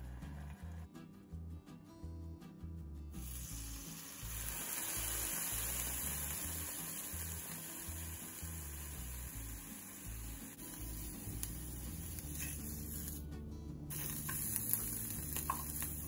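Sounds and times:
background music with bass: 0.0s - 16.0s
pineapple sizzling in oil: 3.2s - 13.2s, 13.9s - 16.0s.

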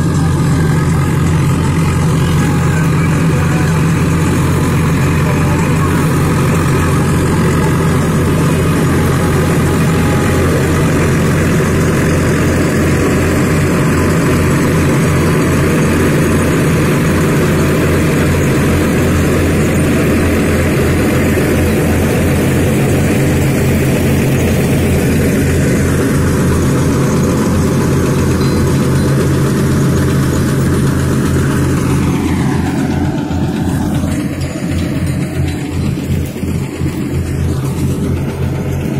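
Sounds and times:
straw reaper rushing mechanical noise: 0.0s - 38.9s
tractor diesel engine running: 0.0s - 38.9s.

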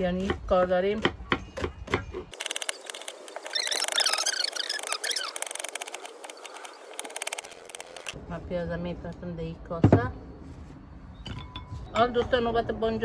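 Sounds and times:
high squeaky chirps: 2.3s - 8.2s.

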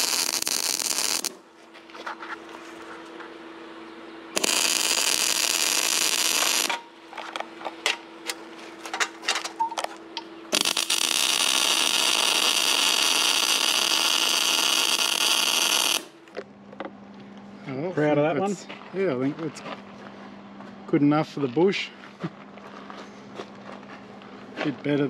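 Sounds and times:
welder arc crackling and hissing: 0.0s - 1.4s, 4.3s - 7.4s, 9.8s - 16.3s
low steady hum: 0.0s - 25.0s.

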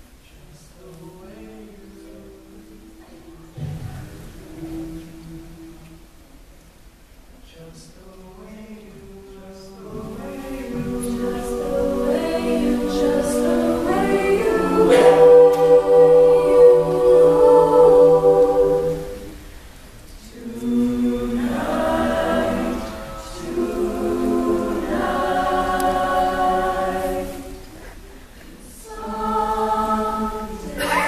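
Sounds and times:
choir singing a jazz ballad: 0.4s - 6.5s, 7.4s - 31.0s.

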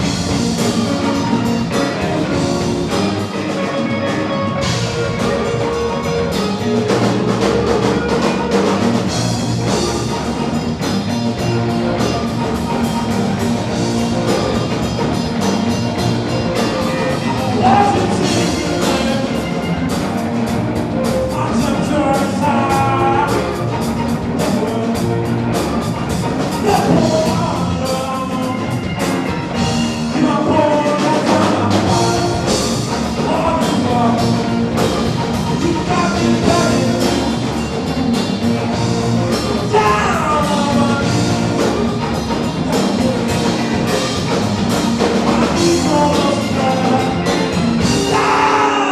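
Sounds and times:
drum kit steady beat: 0.0s - 48.9s
electric guitars: 0.0s - 48.9s.

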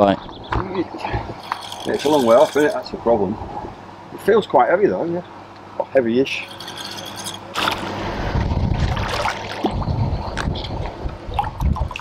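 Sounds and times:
wind buffeting microphone: 8.0s - 12.0s
fish thrashing and splashing: 8.8s - 9.8s.

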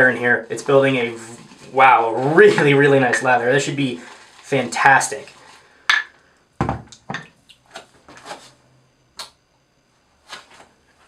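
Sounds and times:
objects knocking and clunking: 5.9s - 8.2s.

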